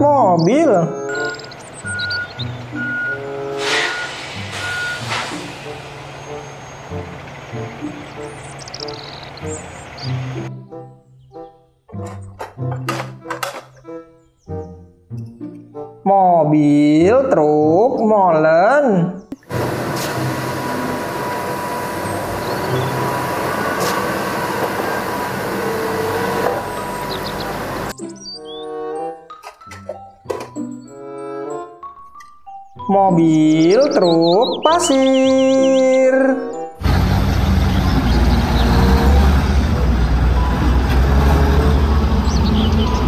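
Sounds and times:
truck diesel engine rumbling: 0.9s - 10.5s, 19.4s - 27.9s, 36.8s - 43.0s
traffic noise: 1.1s - 10.5s, 19.4s - 27.9s, 36.8s - 43.0s.

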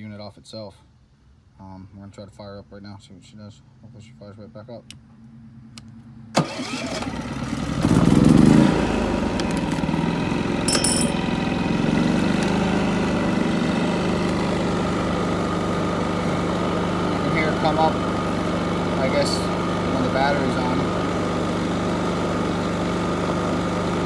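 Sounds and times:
generator engine starting and running: 4.9s - 24.0s.

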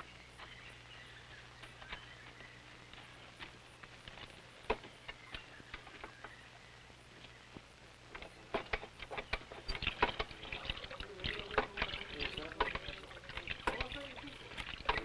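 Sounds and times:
hand water pump clinks and knocks: 8.2s - 15.0s
cups being filled: 8.6s - 15.0s.

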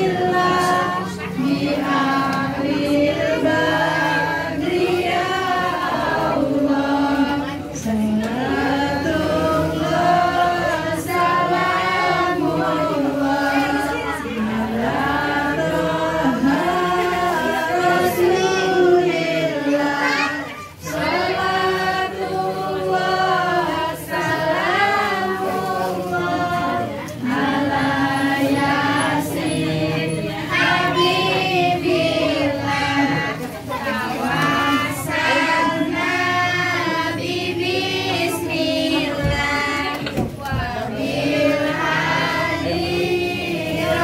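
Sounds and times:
group singing in unison: 0.0s - 44.0s.

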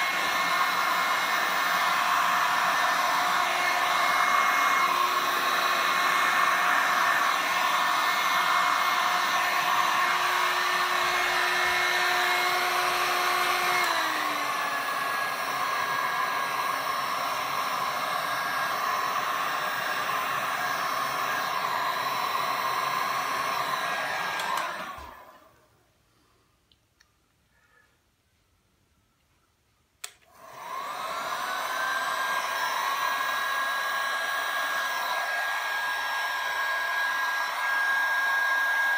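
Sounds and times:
heat gun blowing hiss: 0.0s - 25.4s.

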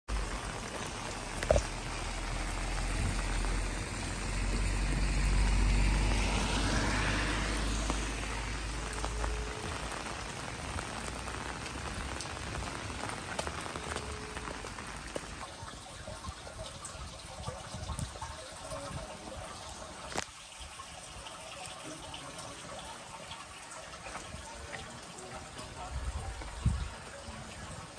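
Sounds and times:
heavy rain on wet street: 0.1s - 27.9s.

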